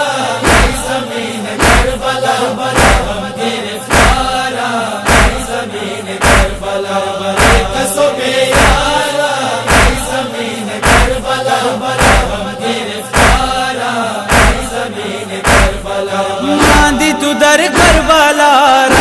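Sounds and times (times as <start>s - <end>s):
voices chanting a lament: 0.0s - 19.0s
deep thumping beat: 0.4s - 0.9s, 1.6s - 2.0s, 2.7s - 3.3s, 3.9s - 4.4s, 5.1s - 5.5s, 6.2s - 6.7s, 7.4s - 7.9s, 8.5s - 9.0s, 9.7s - 10.2s, 10.8s - 11.3s, 12.0s - 12.5s, 13.2s - 13.6s, 14.3s - 18.3s
wavering voice: 16.4s - 19.0s.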